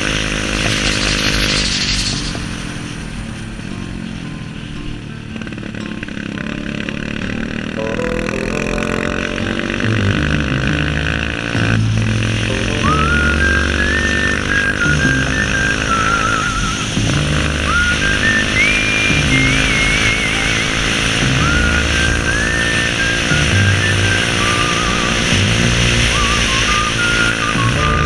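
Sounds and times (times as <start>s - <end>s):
small motorcycle engine running: 0.0s - 28.0s
western-style instrumental music: 0.0s - 28.0s.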